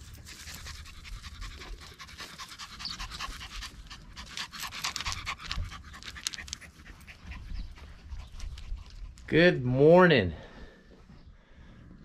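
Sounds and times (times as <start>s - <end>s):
dog panting: 0.0s - 9.3s.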